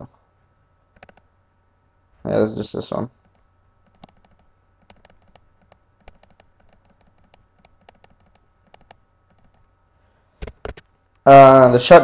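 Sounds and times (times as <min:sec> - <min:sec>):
computer mouse clicking: 0:01.0 - 0:01.3, 0:03.2 - 0:09.7.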